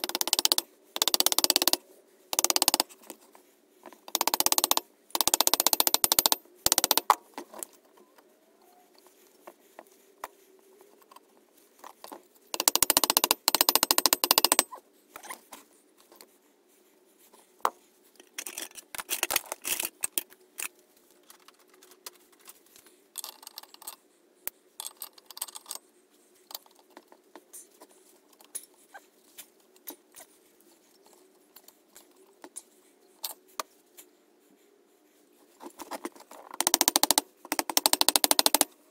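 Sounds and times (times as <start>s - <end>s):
parts and tools clinking: 18.2s - 22.6s, 23.2s - 24.0s.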